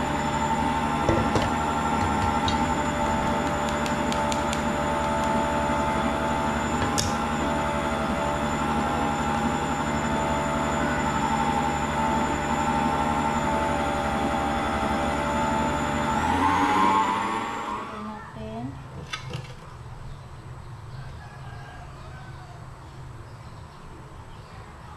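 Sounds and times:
stand mixer motor hum: 0.0 - 18.0.

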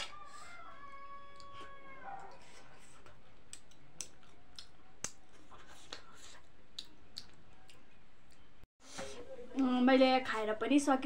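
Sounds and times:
person chewing food: 1.2 - 8.5
wet mouth clicks: 3.5 - 5.2, 5.8 - 7.8.

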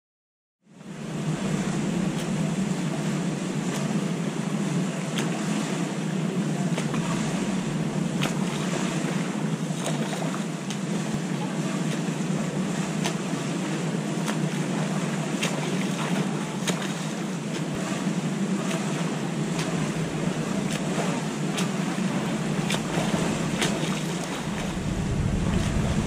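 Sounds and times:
lapping pool water: 0.7 - 26.0
low rumble: 1.0 - 3.7, 6.8 - 9.0, 22.1 - 26.0
wind rushing: 22.2 - 26.0.

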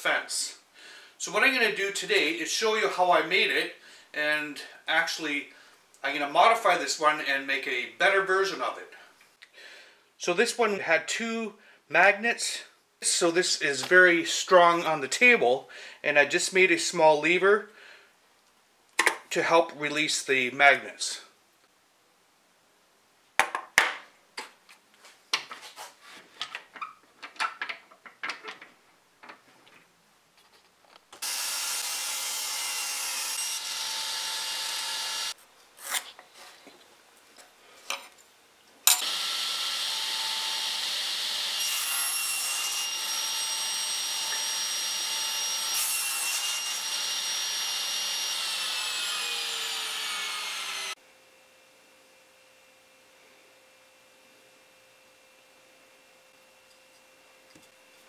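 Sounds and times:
table saw cutting wood: 31.2 - 35.4, 38.9 - 51.0.

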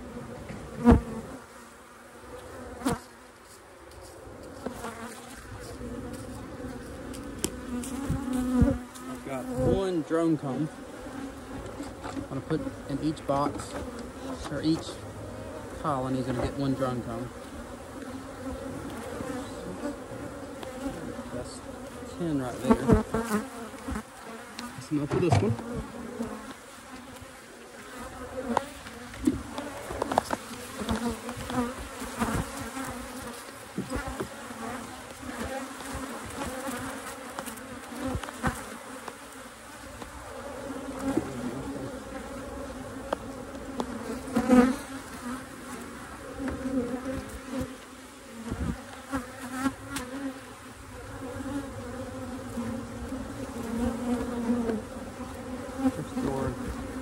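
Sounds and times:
bees buzzing: 0.0 - 57.0
clicks and knocks on hive: 2.4 - 9.6, 20.5 - 20.9, 22.7 - 27.3, 28.4 - 40.2, 40.8 - 41.4, 42.9 - 45.0, 46.4 - 50.3.

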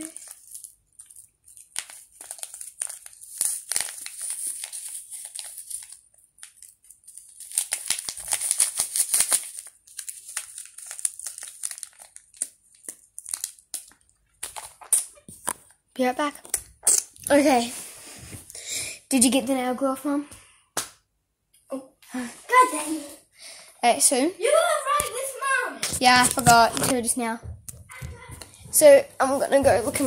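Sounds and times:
plastic packet crinkling: 0.0 - 15.8.

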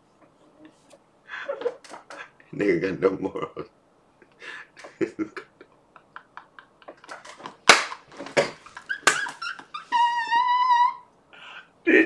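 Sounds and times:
man laughing hard: 4.8 - 7.1.

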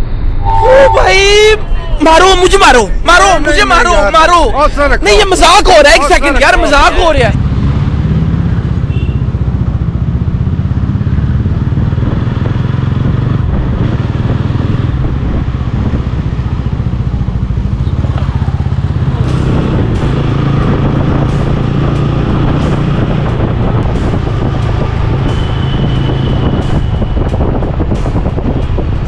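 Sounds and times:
road noise: 0.0 - 29.0
motorcycle engine running: 7.3 - 29.0.

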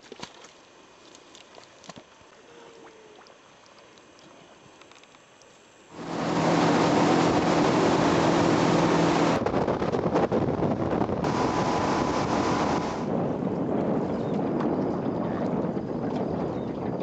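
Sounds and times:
water noise: 0.0 - 17.0
boat engine drone: 5.6 - 17.0
heavy wind: 5.9 - 17.0.

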